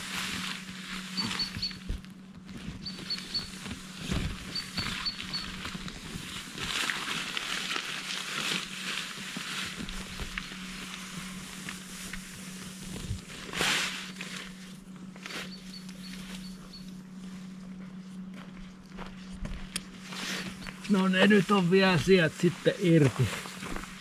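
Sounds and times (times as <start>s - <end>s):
nylon tent fabric rustling: 0.0s - 18.3s, 19.1s - 24.0s.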